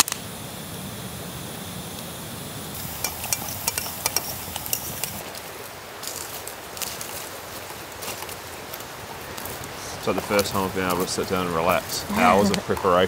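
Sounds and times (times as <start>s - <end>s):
campfire burning: 0.0s - 13.0s
fork clinking against mug: 3.0s - 5.2s.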